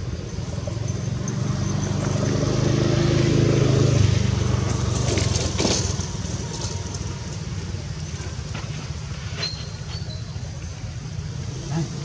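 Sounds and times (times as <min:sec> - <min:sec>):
vehicle engine running: 0:00.0 - 0:09.2.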